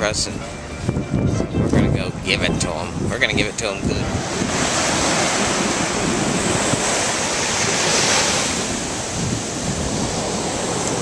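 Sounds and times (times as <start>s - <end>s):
wind buffeting microphone: 0.0s - 11.0s
waves breaking on beach: 3.8s - 11.0s.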